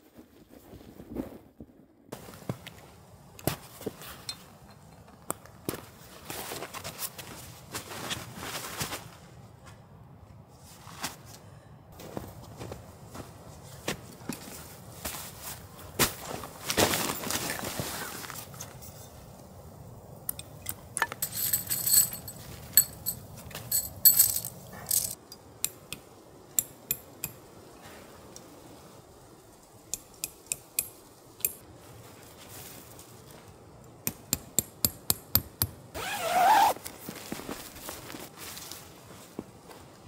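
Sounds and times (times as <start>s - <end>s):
camping gear clinking: 3.4s - 5.6s, 16.2s - 19.2s, 20.3s - 25.9s, 36.0s - 38.8s.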